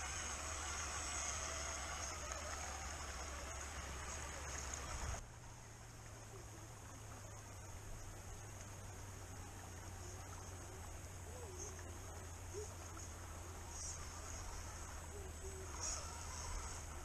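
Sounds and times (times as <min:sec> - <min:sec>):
electric motor whine: 0:00.0 - 0:05.2, 0:09.1 - 0:17.0.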